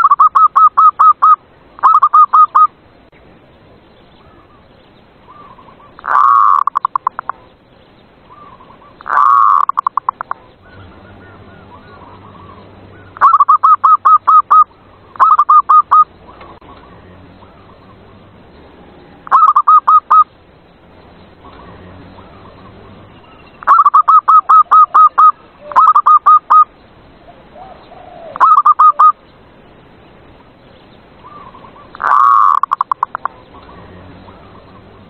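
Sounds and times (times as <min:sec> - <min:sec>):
dove cooing: 0:00.0 - 0:02.7, 0:05.3 - 0:07.3, 0:08.3 - 0:16.8, 0:19.2 - 0:20.2, 0:23.6 - 0:26.7, 0:27.3 - 0:29.2, 0:31.2 - 0:34.8.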